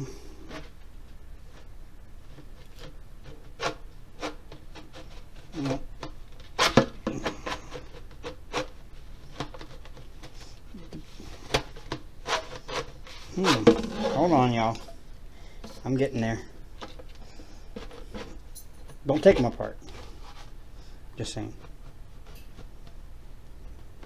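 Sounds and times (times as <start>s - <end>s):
plastic tube sections sliding: 2.4s - 15.0s.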